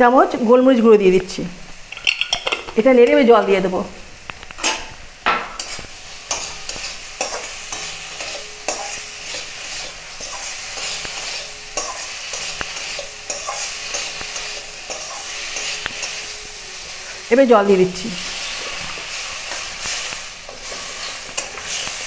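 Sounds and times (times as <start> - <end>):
potatoes sizzling in oil: 0.0 - 22.0
spatula scraping pan: 5.4 - 17.3, 18.2 - 22.0.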